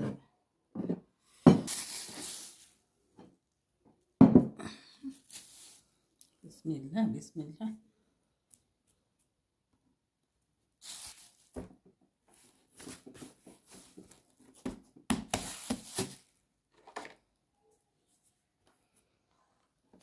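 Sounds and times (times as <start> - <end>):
plastic bag crinkling: 10.8 - 11.6.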